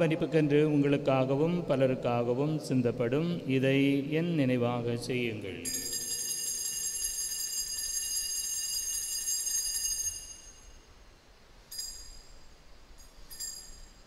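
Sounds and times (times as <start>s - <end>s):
altar bells ringing: 5.6s - 10.8s, 13.0s - 14.0s.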